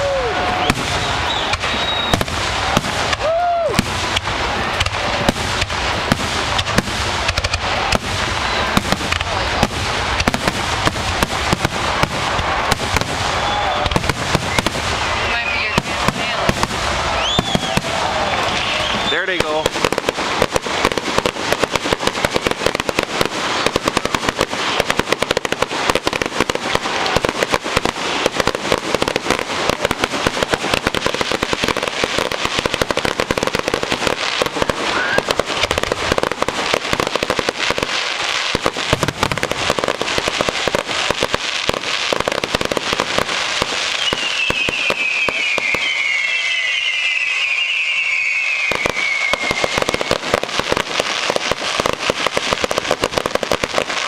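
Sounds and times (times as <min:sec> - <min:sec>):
falling firework whistles: 0:00.0 - 0:05.1, 0:07.2 - 0:09.2, 0:10.2 - 0:21.7, 0:30.3 - 0:36.3, 0:42.2 - 0:53.0
fireworks bangs and crackling: 0:00.0 - 0:54.0.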